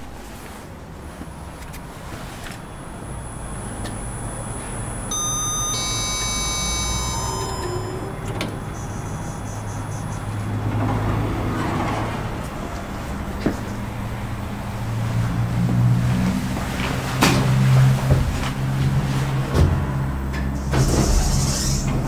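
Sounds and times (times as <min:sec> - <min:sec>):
low elevator hum: 0:00.0 - 0:20.8
electronic chime tones: 0:02.9 - 0:10.6
quick high beeps: 0:05.1 - 0:10.4
elevator doors sliding open: 0:05.1 - 0:14.5, 0:16.4 - 0:22.0.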